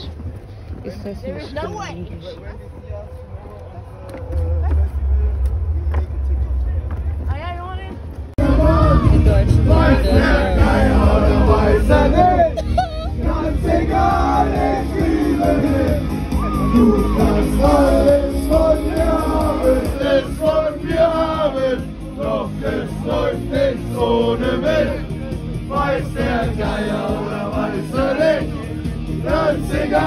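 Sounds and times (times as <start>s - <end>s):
backing track over pa: 5.2s - 30.0s
crowd singing along: 8.4s - 30.0s.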